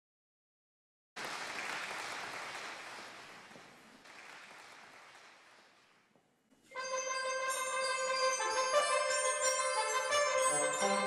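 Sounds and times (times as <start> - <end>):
audience applause: 1.2 - 6.1.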